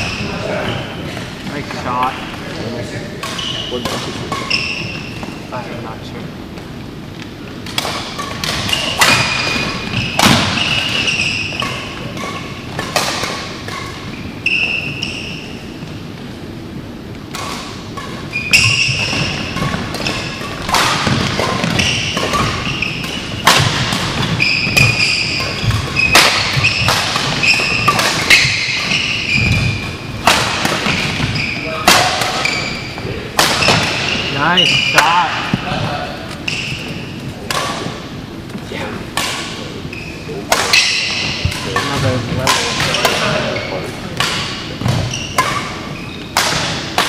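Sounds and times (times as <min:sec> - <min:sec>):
shoes squeaking on court: 0:00.0 - 0:05.6, 0:06.5 - 0:16.3, 0:17.2 - 0:47.0
racket striking shuttlecock: 0:07.5 - 0:14.1, 0:17.2 - 0:32.7, 0:33.3 - 0:34.3, 0:34.9 - 0:39.7, 0:40.4 - 0:43.5, 0:44.1 - 0:47.0.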